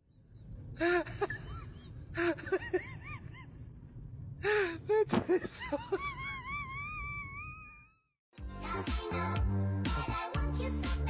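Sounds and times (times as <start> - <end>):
person laughing breathily: 0.8 - 3.7.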